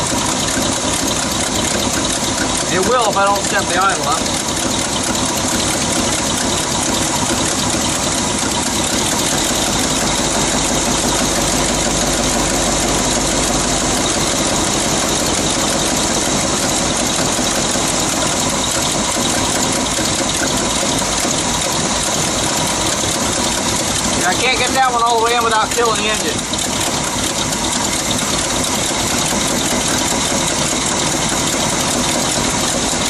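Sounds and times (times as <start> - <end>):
truck engine idling: 0.0 - 33.0.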